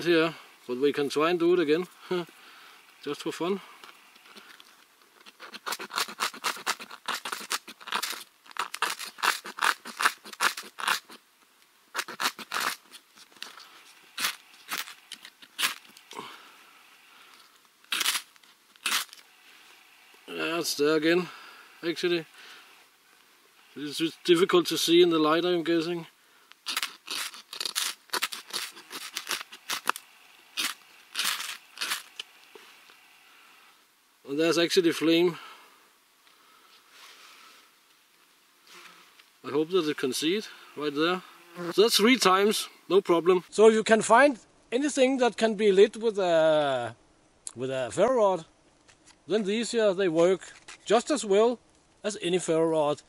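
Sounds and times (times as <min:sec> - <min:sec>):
ferro rod scraping: 0:05.2 - 0:11.2, 0:11.9 - 0:16.2, 0:26.6 - 0:30.0.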